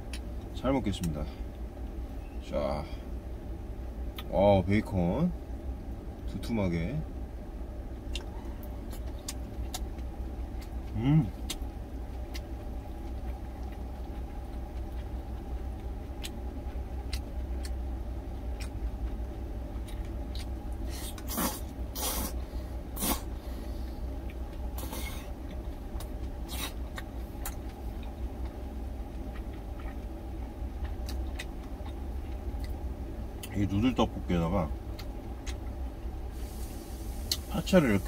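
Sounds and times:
noodles slurped: 23.0s - 23.3s.

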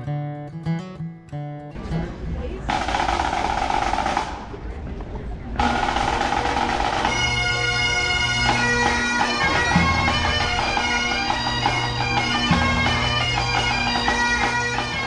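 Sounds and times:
bagpipe drones: 2.7s - 4.5s, 5.6s - 15.0s
bagpipes playing melody: 2.7s - 4.5s, 5.6s - 15.0s.

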